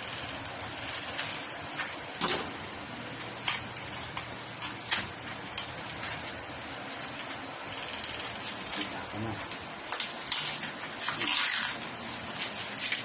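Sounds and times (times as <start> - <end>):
plastic wrap peeling: 3.1 - 6.4, 8.2 - 13.0.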